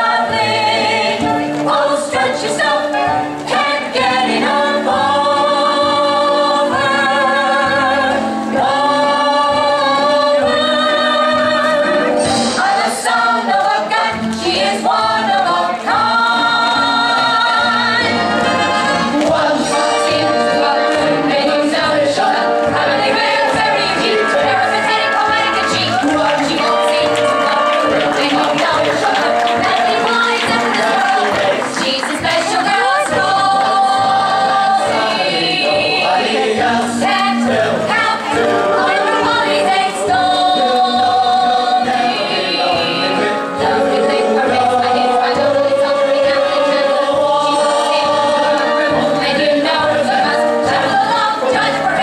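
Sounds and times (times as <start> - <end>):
voices singing over backing track: 0.0 - 52.0.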